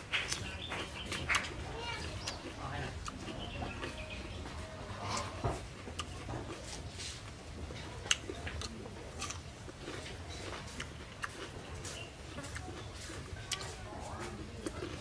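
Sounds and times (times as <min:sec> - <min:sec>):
person chewing crisp vegetables: 0:00.0 - 0:15.0.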